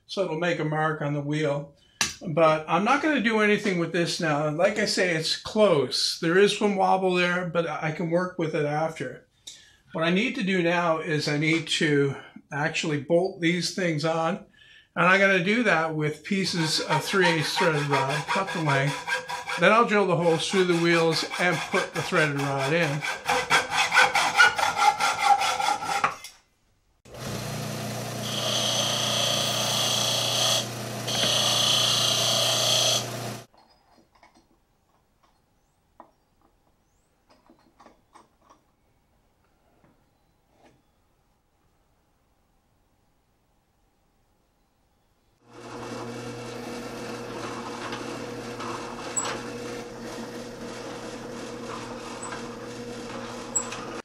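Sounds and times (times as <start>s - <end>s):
metal grinding against disc: 16.4s - 26.2s, 28.2s - 33.3s, 45.6s - 54.0s
drill press boring wood: 16.6s - 25.8s, 27.1s - 33.5s, 45.5s - 54.0s
hacksaw cutting steel rod: 16.6s - 26.3s, 28.2s - 33.3s
disc sander motor humming: 27.1s - 33.5s, 45.5s - 54.0s.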